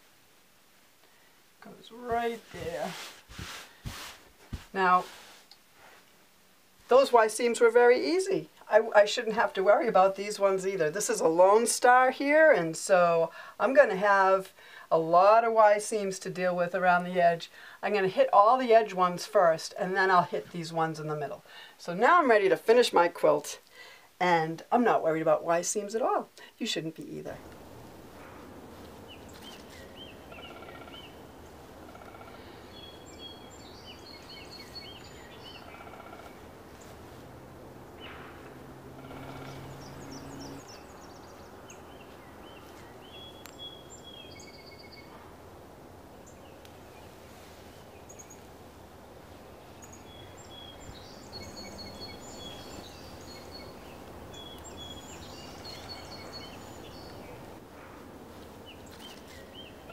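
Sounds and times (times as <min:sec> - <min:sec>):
outdoor background noise: 0:00.0 - 0:59.9
small birds chirping: 0:26.4 - 0:45.3, 0:46.0 - 0:59.9.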